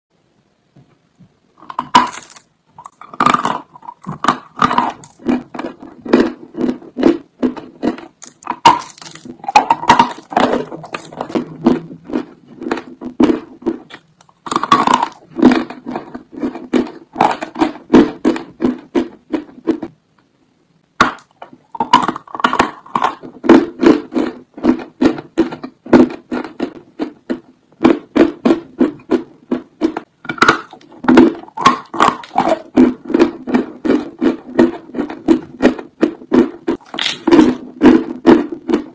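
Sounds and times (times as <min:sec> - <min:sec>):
rhythmic chewing: 0:01.6 - 0:20.0, 0:21.0 - 0:38.9
crunching bites of chalk: 0:01.7 - 0:18.4, 0:29.9 - 0:38.8.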